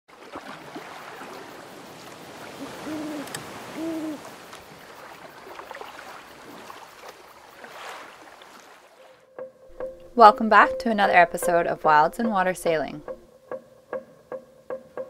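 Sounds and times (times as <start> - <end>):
steady background hiss: 0.6 - 8.9
short low hoots: 2.6 - 4.3.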